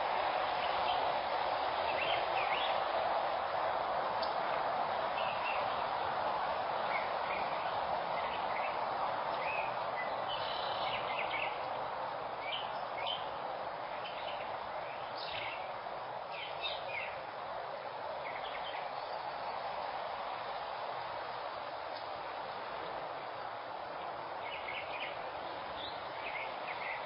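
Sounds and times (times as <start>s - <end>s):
steady microphone hiss: 0.0s - 27.0s
wild birds chirping: 1.8s - 2.9s, 5.1s - 6.1s, 6.8s - 8.8s, 9.4s - 17.4s, 18.0s - 27.0s.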